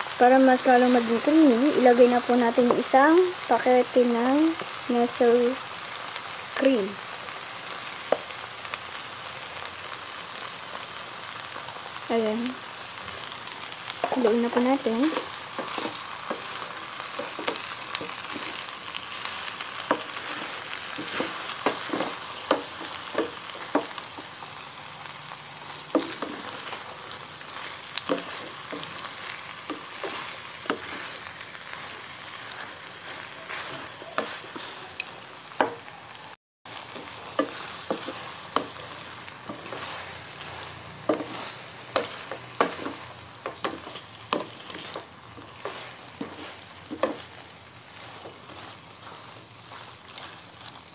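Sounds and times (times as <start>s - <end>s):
food sizzling in a pan: 0.0s - 50.9s
spatula scraping and knocking pan: 13.9s - 24.4s, 25.6s - 35.9s, 36.8s - 50.8s.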